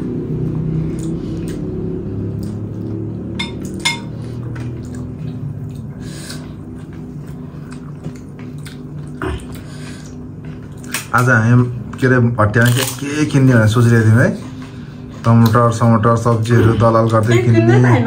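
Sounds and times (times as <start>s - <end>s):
dishes and cutlery clinking: 3.4s - 4.2s.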